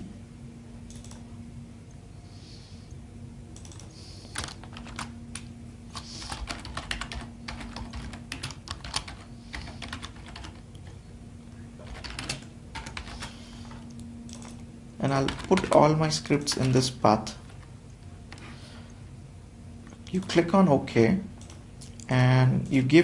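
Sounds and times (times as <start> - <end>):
faint low hum: 0.0 - 23.0
typing on computer keyboard: 0.9 - 1.2, 3.6 - 10.9, 11.8 - 16.8.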